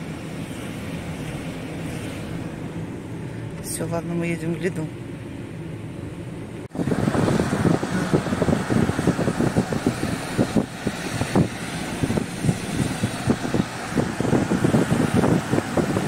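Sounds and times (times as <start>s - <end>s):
car cabin hum: 0.0s - 16.0s
car road noise: 0.0s - 16.0s
wind gusting against microphone: 6.5s - 16.0s.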